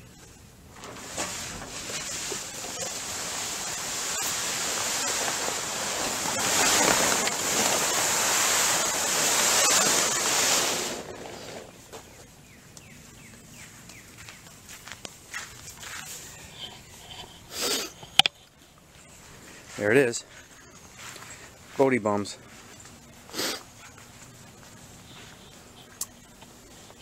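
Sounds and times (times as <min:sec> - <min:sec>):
plastic tarp rustling dragged: 0:00.7 - 0:12.0.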